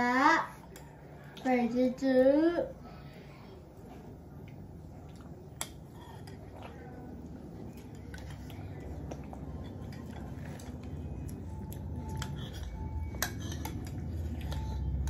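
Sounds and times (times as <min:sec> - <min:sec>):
faint low hum: 0:00.0 - 0:15.0
spoons clicking against bowls: 0:12.0 - 0:15.0.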